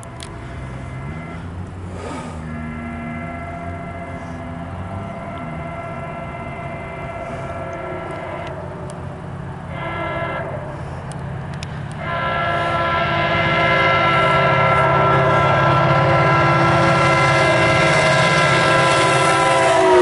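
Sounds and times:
train low rumble: 0.0s - 20.0s
train horn blasts: 2.4s - 20.0s.

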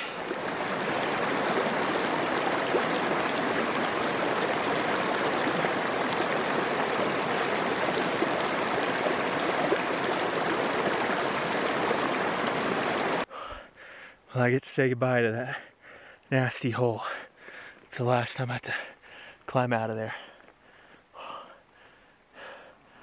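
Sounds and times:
creek running over rocks: 0.0s - 13.3s.

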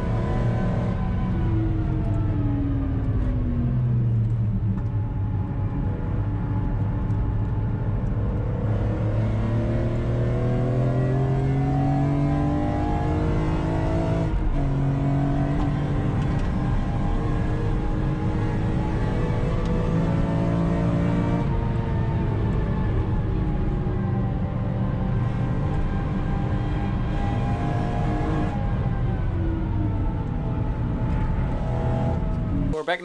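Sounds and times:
car engine revving: 8.1s - 32.8s.

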